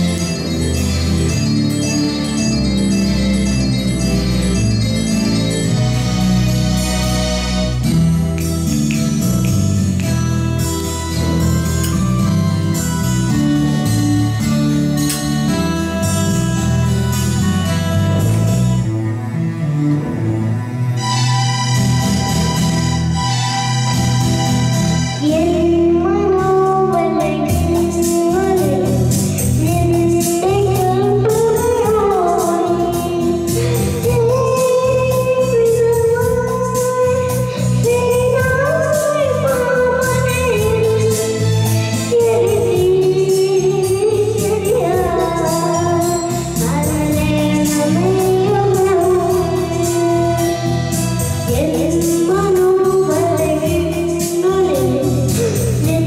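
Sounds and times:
instrumental backing music: 0:00.0 - 0:56.0
boy singing into microphone: 0:25.2 - 0:56.0.

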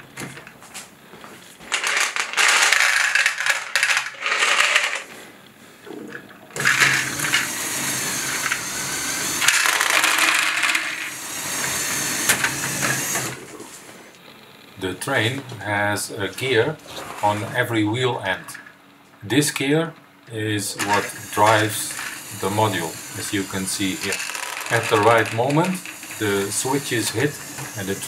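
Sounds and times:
plastic balls clattering: 0:01.6 - 0:05.1, 0:06.6 - 0:13.4, 0:20.8 - 0:28.0
toy train motor whirring: 0:01.7 - 0:05.1, 0:06.6 - 0:13.5, 0:20.6 - 0:28.0.

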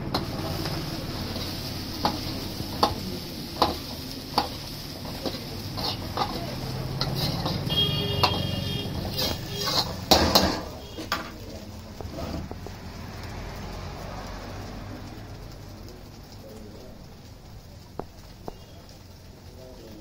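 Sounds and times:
ladle scraping in a wok: 0:00.0 - 0:13.0.

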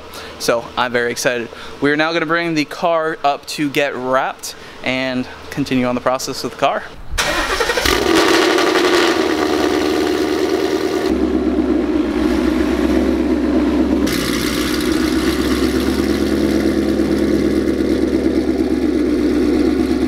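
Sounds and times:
car engine idling: 0:07.4 - 0:20.0.

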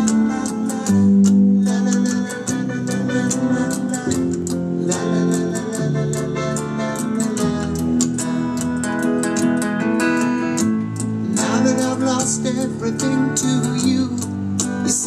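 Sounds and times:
guitar-led song with beat: 0:00.0 - 0:15.0.

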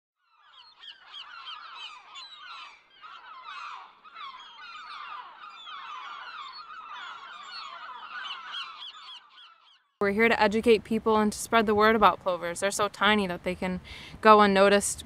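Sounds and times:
birds calling in chorus: 0:00.2 - 0:10.0.

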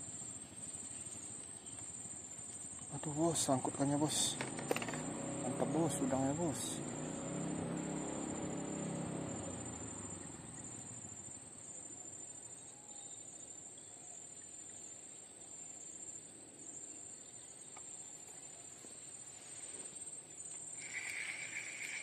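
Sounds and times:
insects droning: 0:00.0 - 0:22.0
faint hiss: 0:19.2 - 0:22.0.

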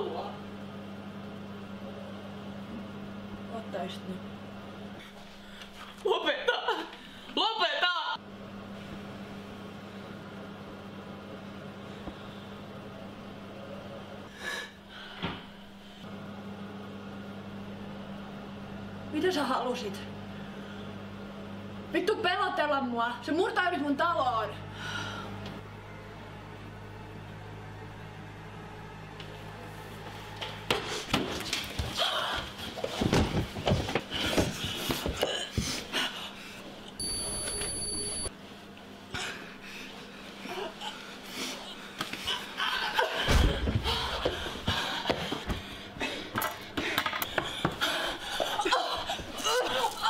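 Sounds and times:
low electrical hum: 0:00.0 - 0:50.0
low hum: 0:24.5 - 0:30.7.

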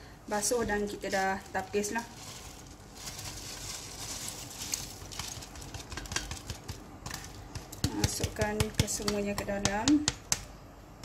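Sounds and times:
spatula taps and clicks: 0:05.0 - 0:10.6.

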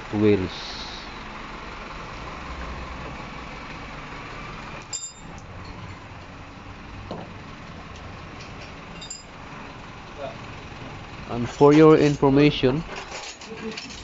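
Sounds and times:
steady background noise: 0:00.0 - 0:14.0
sharp metallic clink: 0:04.9 - 0:06.0, 0:09.0 - 0:09.3.

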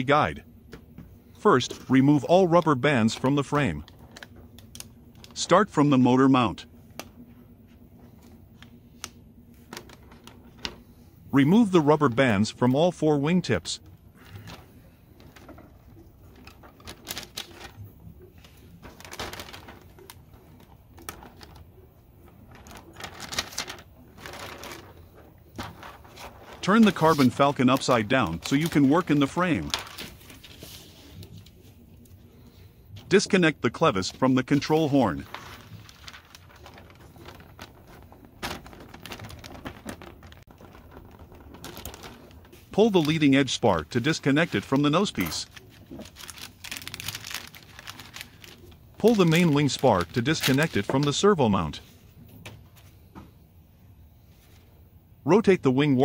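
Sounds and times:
fabric rustling: 0:35.0 - 0:43.2, 0:45.2 - 0:49.4.

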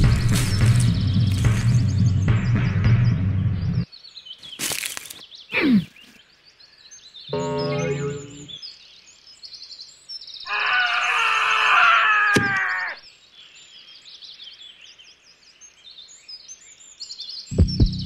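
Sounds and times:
birdsong: 0:00.0 - 0:18.0
shrill wavering cry: 0:10.5 - 0:13.0.

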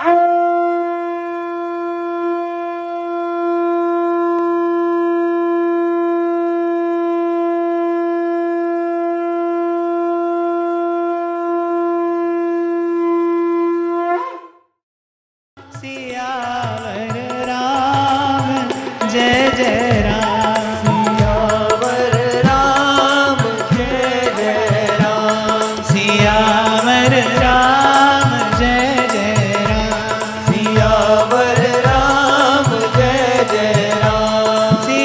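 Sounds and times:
conch shell trumpet long note: 0:00.0 - 0:14.6.

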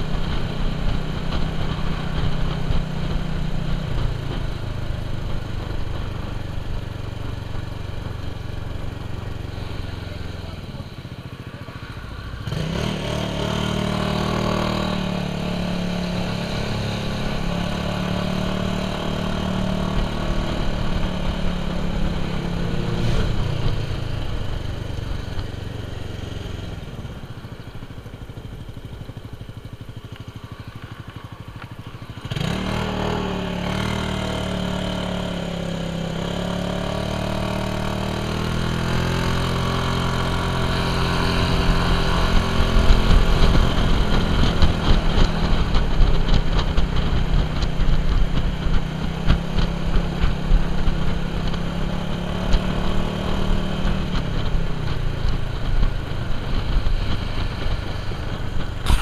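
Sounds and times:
scooter engine running: 0:00.0 - 0:59.0.

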